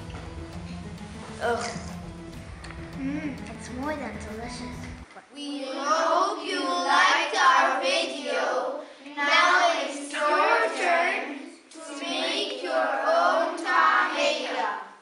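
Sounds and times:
children singing in unison: 0:05.9 - 0:15.0.

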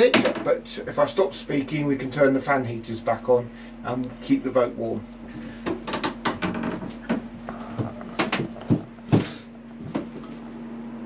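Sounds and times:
wooden knocks and clatter: 0:05.4 - 0:10.3.

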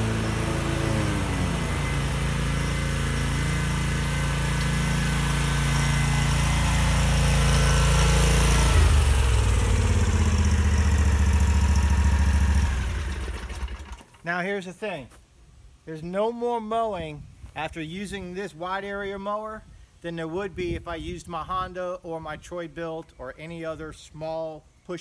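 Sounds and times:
lawn mower engine running: 0:00.0 - 0:14.2.

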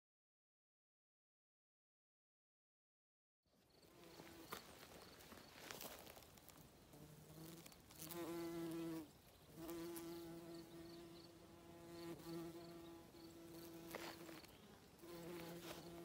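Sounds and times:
insect buzzing: 0:03.7 - 0:05.6, 0:06.2 - 0:16.0.

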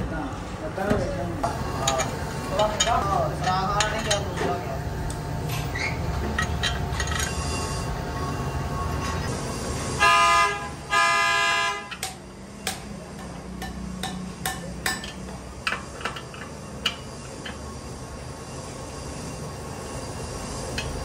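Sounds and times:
vehicle horn honking: 0:10.0 - 0:12.0.

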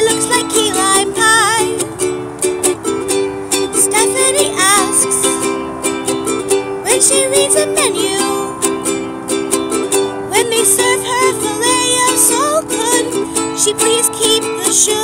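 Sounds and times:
woman singing: 0:00.0 - 0:01.9, 0:03.7 - 0:05.5, 0:06.8 - 0:08.7, 0:10.3 - 0:15.0
ukulele strumming: 0:00.0 - 0:15.0.

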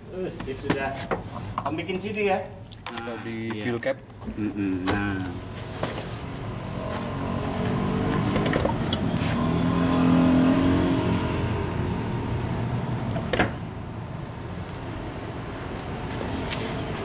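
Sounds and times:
car engine revving: 0:06.3 - 0:14.0.

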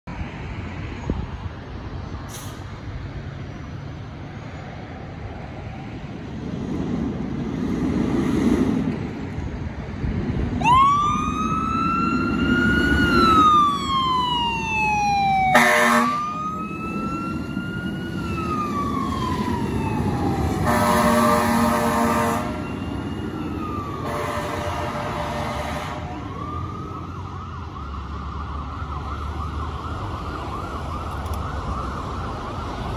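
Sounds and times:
diesel engine rumbling and revving: 0:00.1 - 0:32.9
siren wailing: 0:10.6 - 0:32.9
air horn blast: 0:15.5 - 0:16.3, 0:20.6 - 0:22.6, 0:24.0 - 0:26.1.

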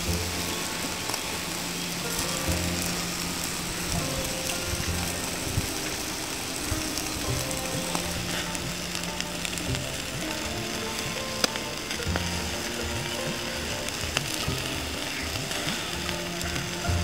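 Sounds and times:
charcoal embers crackling and sizzling: 0:00.0 - 0:17.0
fat dripping onto coals: 0:00.0 - 0:17.0
sharp pops: 0:00.0 - 0:17.0.

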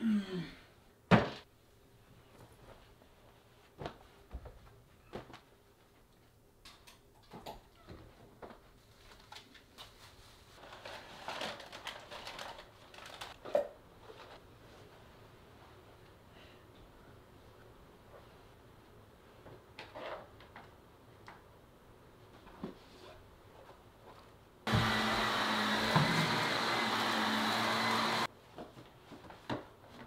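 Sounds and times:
rustling and scraping: 0:08.0 - 0:13.4.

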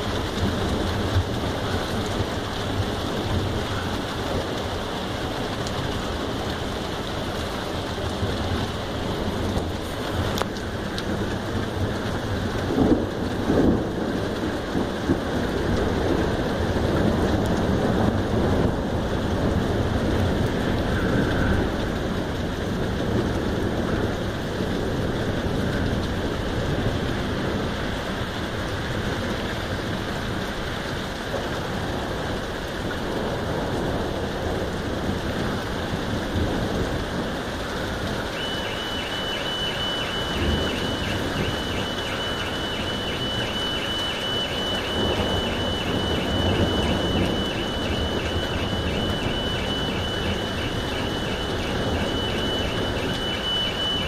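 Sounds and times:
heavy rain hissing: 0:00.0 - 0:54.0
car alarm pulsing tone: 0:38.2 - 0:54.0.

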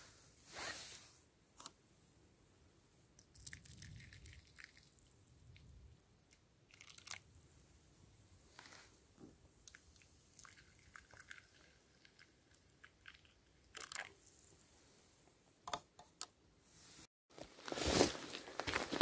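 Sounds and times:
faint small crackles and clicks: 0:03.2 - 0:05.7.

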